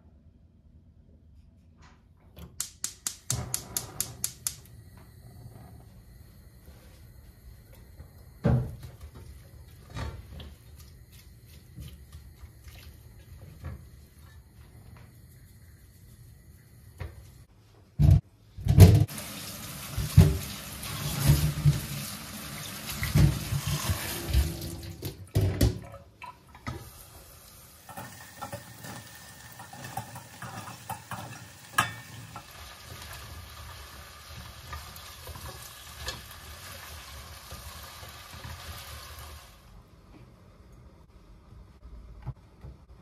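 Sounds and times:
food sizzling in a pot: 0:19.0 - 0:24.7, 0:26.8 - 0:39.7.

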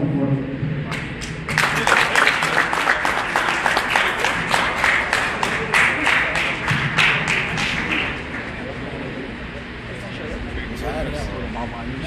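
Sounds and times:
audience applauding: 0:00.9 - 0:08.8.

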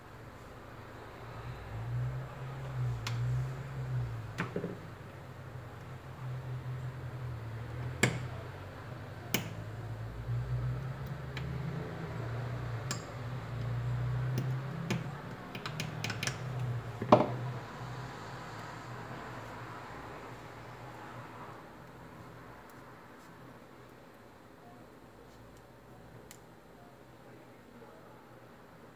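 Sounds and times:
metal pick clicking and tapping: 0:09.3 - 0:09.6, 0:12.8 - 0:13.1, 0:14.3 - 0:16.7.

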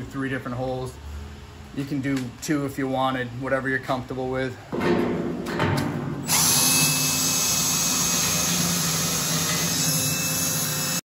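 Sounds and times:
drill boring through steel: 0:06.3 - 0:11.0.

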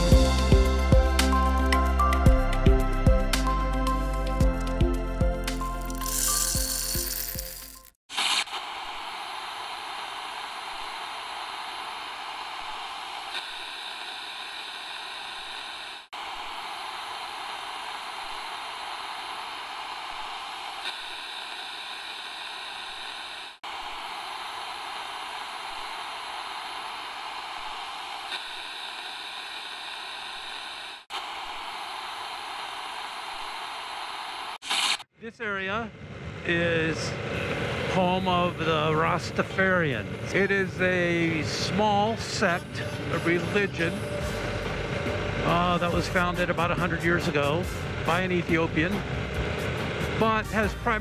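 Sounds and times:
steady rushing hiss: 0:08.1 - 0:35.1, 0:36.6 - 0:50.4.

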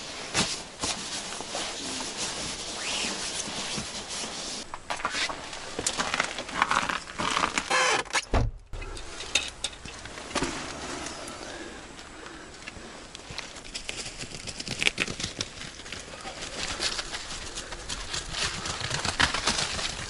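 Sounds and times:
nylon sleeping bag rustling: 0:00.0 - 0:07.7
objects scraping and clattering: 0:08.9 - 0:11.7.

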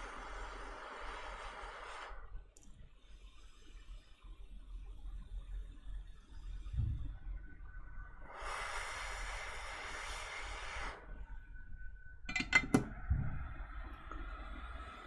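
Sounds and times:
hot air blowing: 0:00.0 - 0:02.3, 0:08.2 - 0:11.2
faint whine: 0:00.0 - 0:15.0.

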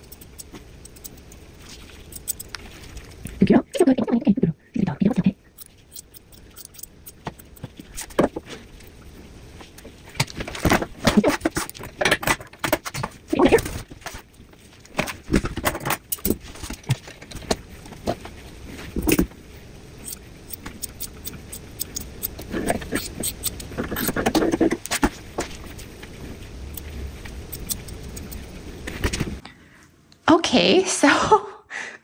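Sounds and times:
scissors snipping hair: 0:00.0 - 0:02.7, 0:05.6 - 0:07.7, 0:20.0 - 0:24.2, 0:27.5 - 0:28.5
rustling and handling noise: 0:00.0 - 0:03.7, 0:05.1 - 0:30.0.

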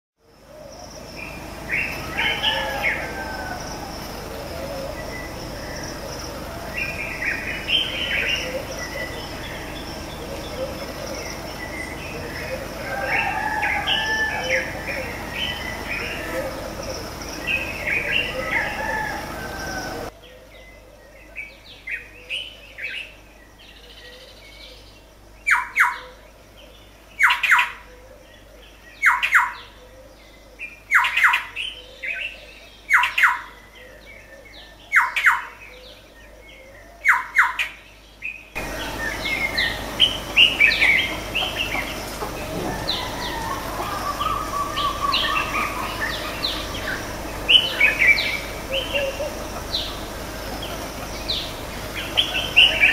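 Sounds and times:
birds chirping: 0:00.3 - 0:52.9.

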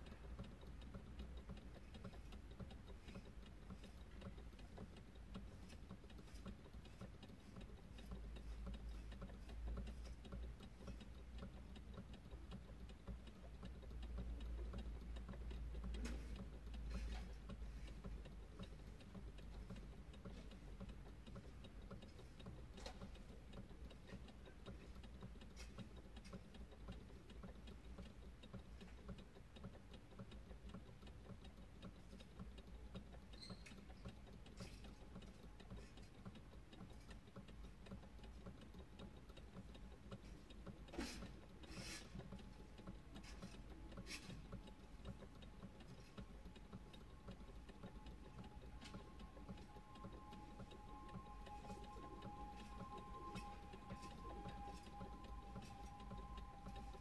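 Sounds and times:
faint steady ticking: 0:00.0 - 0:57.0.

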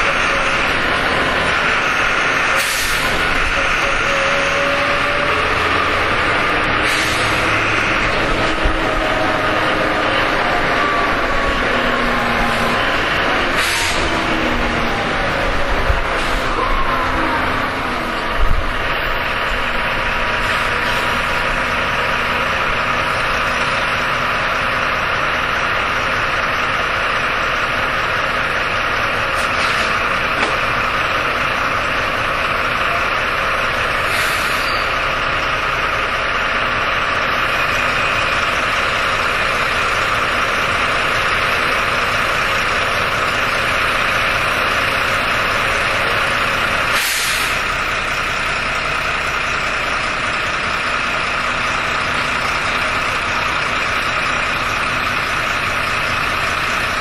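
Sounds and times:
bus diesel engine running: 0:00.0 - 0:57.0
air brake hisses: 0:02.6 - 0:03.2, 0:06.8 - 0:07.5, 0:13.5 - 0:14.1, 0:34.1 - 0:34.9, 0:46.9 - 0:47.6.

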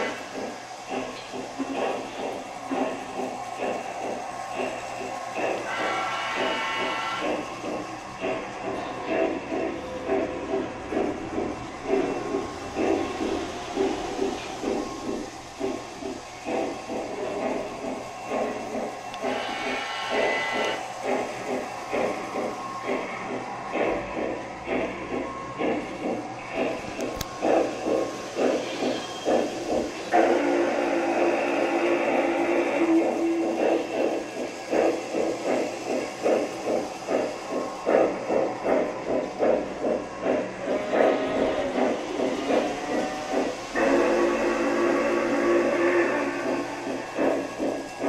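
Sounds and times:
model steam locomotive chuffing: 0:00.0 - 0:48.0.

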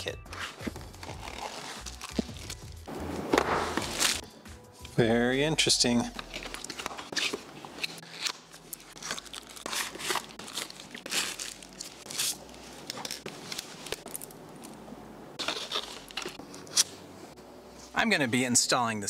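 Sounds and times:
packaging rustling and crinkling: 0:00.3 - 0:02.9, 0:03.7 - 0:04.2, 0:06.1 - 0:14.8, 0:15.4 - 0:16.9.

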